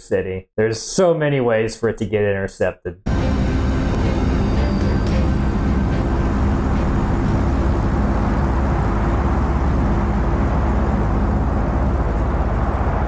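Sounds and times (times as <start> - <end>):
deep rumbling roar: 3.1 - 13.0.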